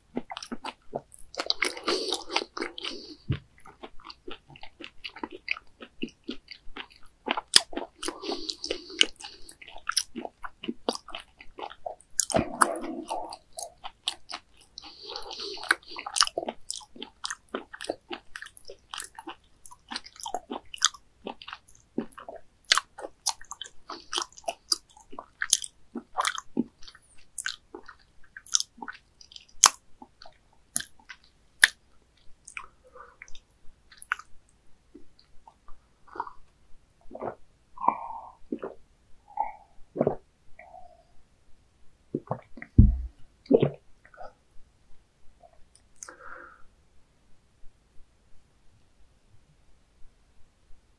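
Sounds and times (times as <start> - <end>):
person chewing wetly: 0.1 - 38.8.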